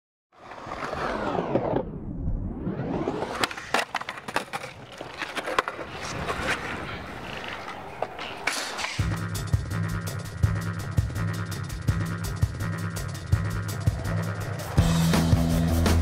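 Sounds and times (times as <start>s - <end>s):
skateboard wheels rolling on concrete: 0.3s - 2.0s, 2.7s - 16.0s
skateboard clacking and grinding: 3.2s - 11.4s.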